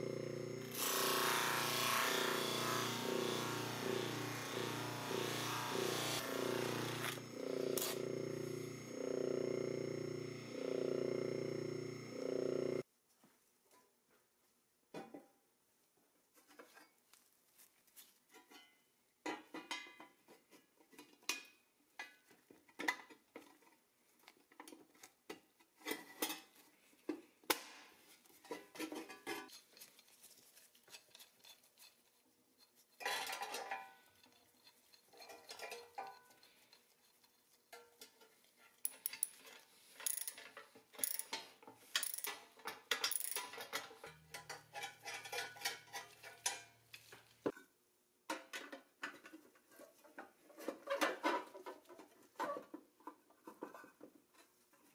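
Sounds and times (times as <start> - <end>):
small metal parts clinking: 38.8 - 46.7.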